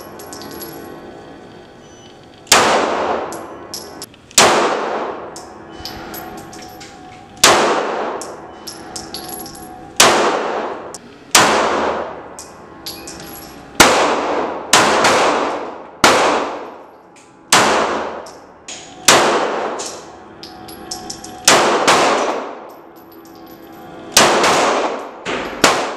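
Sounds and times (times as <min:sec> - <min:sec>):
pistol shots echoing: 0:02.5 - 0:05.4, 0:07.4 - 0:12.2, 0:13.8 - 0:16.8, 0:17.5 - 0:20.1, 0:21.0 - 0:22.7, 0:24.2 - 0:25.9.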